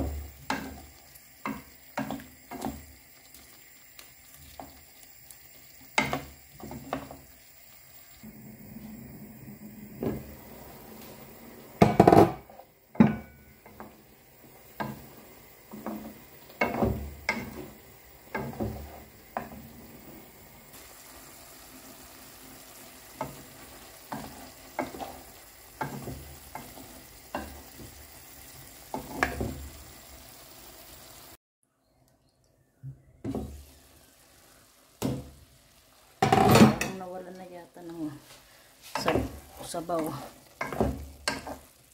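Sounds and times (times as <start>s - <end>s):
faint sizzle: 0.0s - 31.4s, 33.2s - 41.9s
spatula scraping frying pan: 22.6s - 27.8s, 38.5s - 41.9s.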